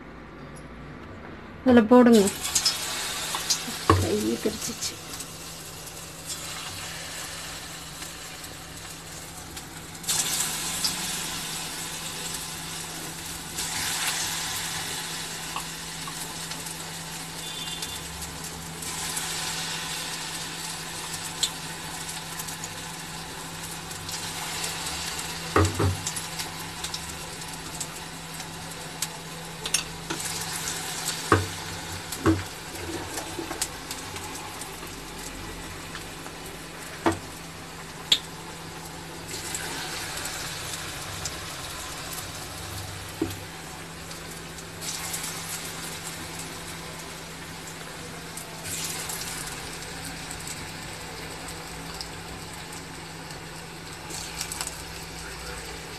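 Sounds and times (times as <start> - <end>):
hot oil sizzling: 2.0 - 55.9.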